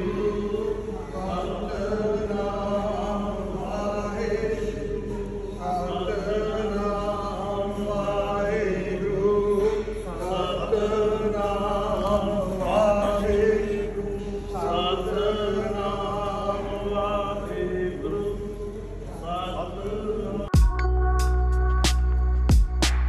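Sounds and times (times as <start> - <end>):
voices chanting a hymn: 0.0 - 20.6
steady low hum: 0.0 - 23.0.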